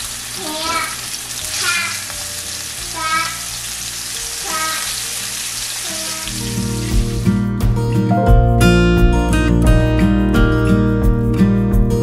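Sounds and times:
meat sizzling in skillet: 0:00.0 - 0:07.8
background music: 0:06.2 - 0:12.0.

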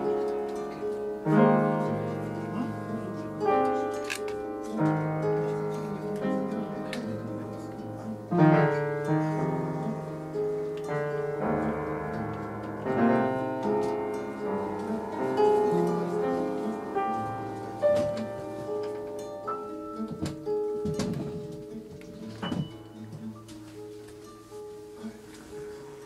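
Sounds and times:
acoustic guitar: 0:00.0 - 0:26.0
piano chords: 0:00.0 - 0:26.0.

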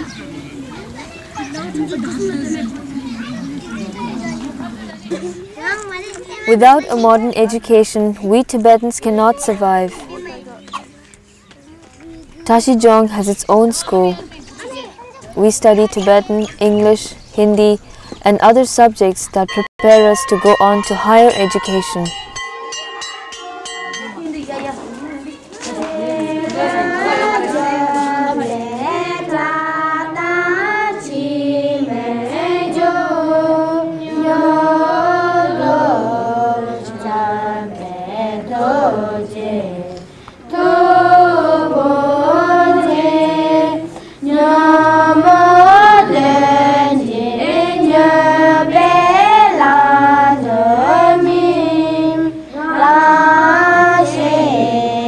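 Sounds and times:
high voices singing in unison: 0:25.6 - 0:55.0.

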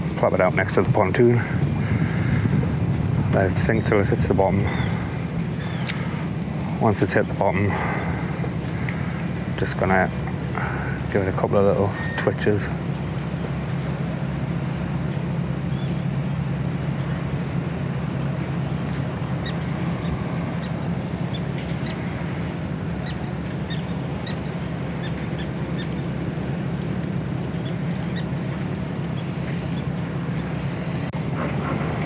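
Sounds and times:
low harbour hum: 0:00.0 - 0:32.0.

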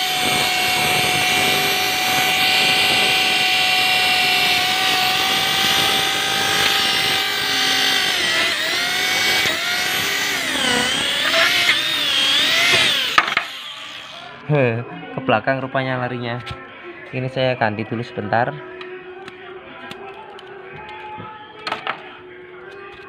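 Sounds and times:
small electric motor whining: 0:00.0 - 0:14.4.

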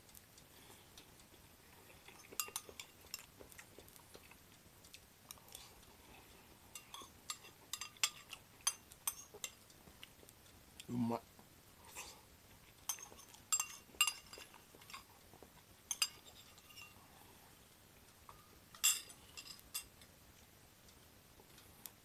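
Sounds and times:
utensil clinking on dishware: 0:02.1 - 0:03.3, 0:06.8 - 0:09.6, 0:12.9 - 0:15.1, 0:15.9 - 0:17.0, 0:18.3 - 0:19.9.

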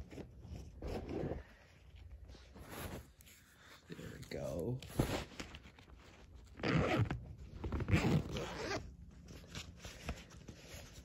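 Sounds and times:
zipper rasping on fabric case: 0:00.0 - 0:01.6, 0:06.6 - 0:08.9.

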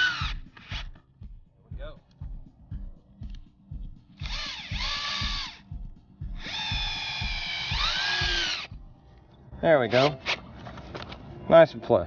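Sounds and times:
cordless drill driving screws: 0:00.0 - 0:00.9, 0:04.2 - 0:05.6, 0:06.4 - 0:08.7.

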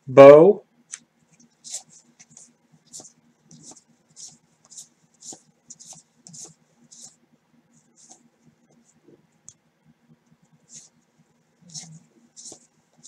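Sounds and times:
trading cards swishing: 0:00.9 - 0:07.2, 0:11.7 - 0:13.0.

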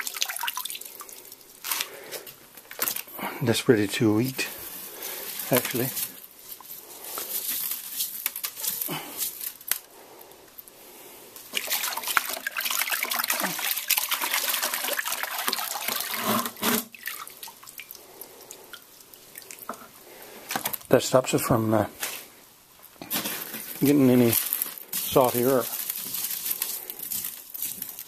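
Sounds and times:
water splashing in a bucket: 0:00.0 - 0:01.5, 0:11.5 - 0:18.0
water dripping: 0:00.0 - 0:01.6, 0:11.4 - 0:16.1, 0:16.9 - 0:19.8.

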